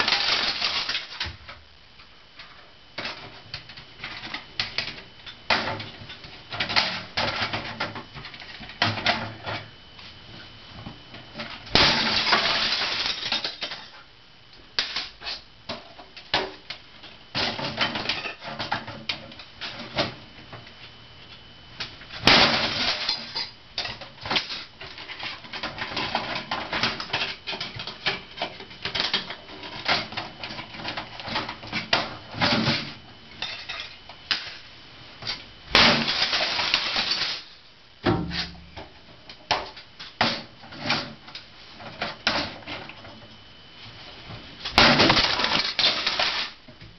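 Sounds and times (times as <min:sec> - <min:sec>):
hammer smashing brittle plastic: 0:00.0 - 0:01.3, 0:11.7 - 0:13.8, 0:22.2 - 0:23.4, 0:35.7 - 0:37.5, 0:44.7 - 0:46.6
plastic pieces clattering: 0:00.0 - 0:01.3, 0:44.7 - 0:46.6.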